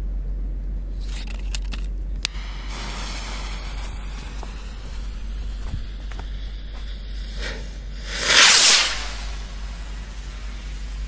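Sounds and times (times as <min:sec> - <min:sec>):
firework rocket click: 0:01.0 - 0:11.0
rocket launch hiss: 0:02.3 - 0:11.0.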